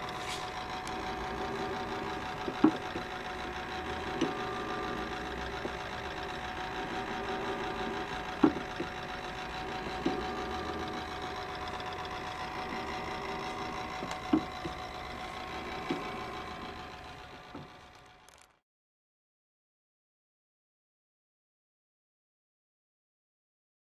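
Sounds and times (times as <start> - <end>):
model engine mechanical whirr: 0.0 - 18.6.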